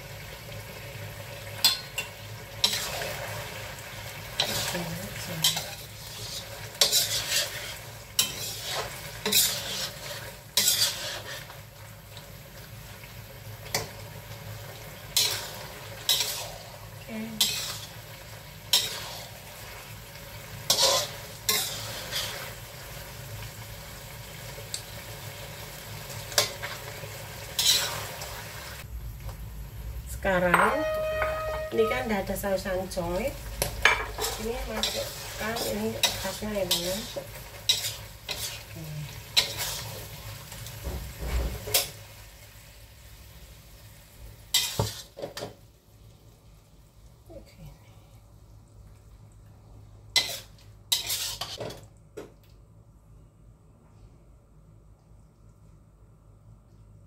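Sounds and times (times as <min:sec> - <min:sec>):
food sizzling: 0:00.0 - 0:47.5, 0:48.2 - 0:52.0
metal spatula scraping wok: 0:01.6 - 0:03.6, 0:04.2 - 0:11.7, 0:15.1 - 0:19.8, 0:20.5 - 0:22.7, 0:27.5 - 0:28.4, 0:30.5 - 0:40.2, 0:44.5 - 0:45.4, 0:50.1 - 0:51.8.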